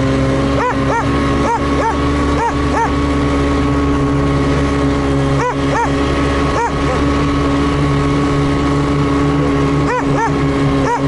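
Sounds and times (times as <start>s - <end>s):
snowmobile engine running: 0.0s - 11.0s
dog barking: 0.6s - 2.9s, 5.4s - 6.0s, 9.9s - 11.0s.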